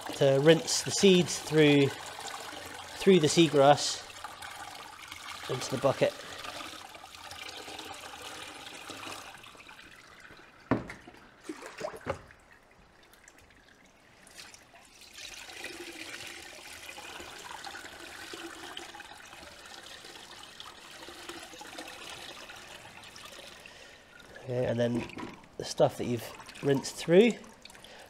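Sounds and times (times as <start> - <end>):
water splashing through a sieve: 0.0 - 23.6.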